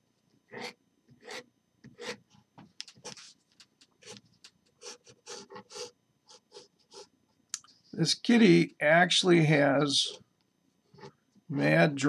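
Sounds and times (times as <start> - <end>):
pen scratching on paper: 0.5 - 2.2, 4.8 - 7.1.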